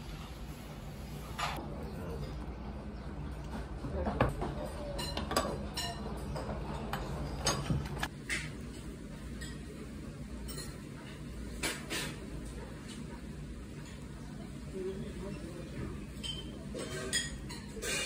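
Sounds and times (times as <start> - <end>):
tableware clinking: 1.3 - 1.6, 4.6 - 9.8, 10.4 - 12.2, 16.1 - 18.0.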